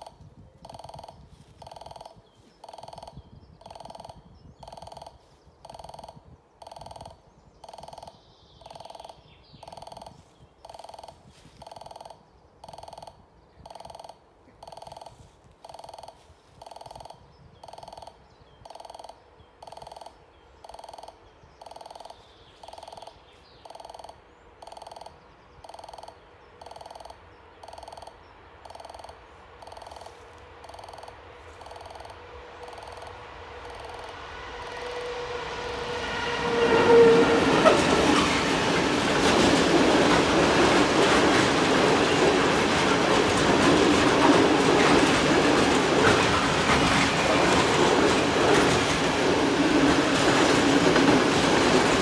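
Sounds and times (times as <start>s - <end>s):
level crossing warning bell: 25.7s - 35.2s.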